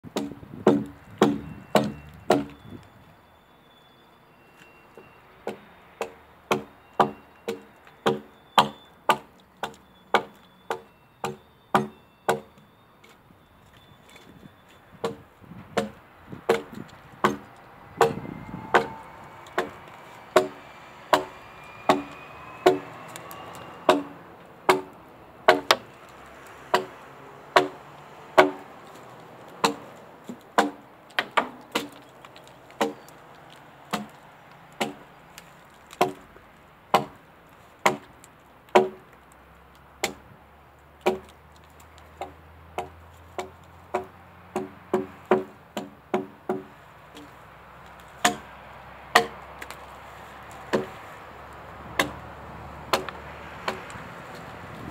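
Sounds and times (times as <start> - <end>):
axe chopping wood: 0.1 - 2.6, 5.5 - 12.5, 15.0 - 33.1, 33.9 - 35.1, 35.9 - 36.2, 36.9 - 37.2, 37.8 - 39.0, 40.0 - 40.3, 41.0 - 41.4, 42.2 - 47.3, 48.0 - 49.8, 50.5 - 51.1, 51.8 - 52.3, 52.9 - 54.9.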